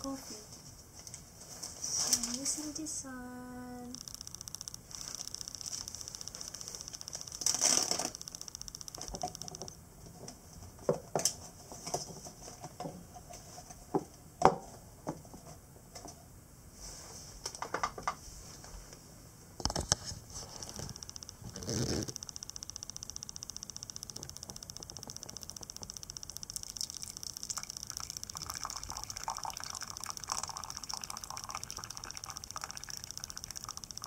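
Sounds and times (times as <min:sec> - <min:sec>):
steady high hiss: 0:01.9 - 0:09.8, 0:20.4 - 0:34.0
clicks and taps: 0:04.0 - 0:09.8, 0:20.6 - 0:30.6.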